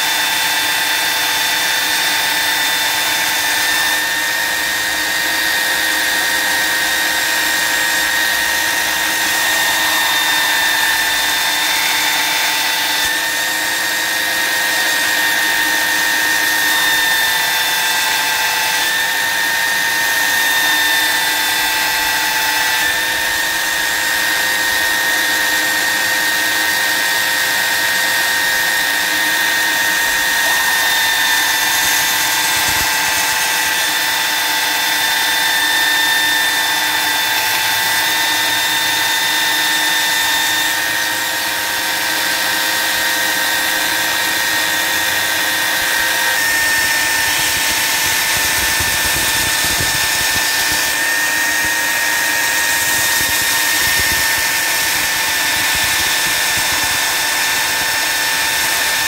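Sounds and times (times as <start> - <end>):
belt sander motor whine: 0.0 - 59.0.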